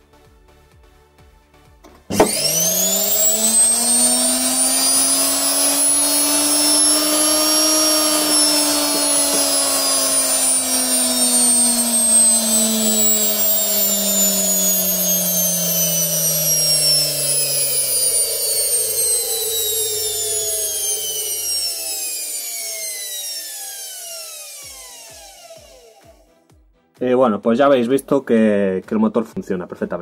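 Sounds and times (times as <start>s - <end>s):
electric motor whining: 2.0s - 26.3s.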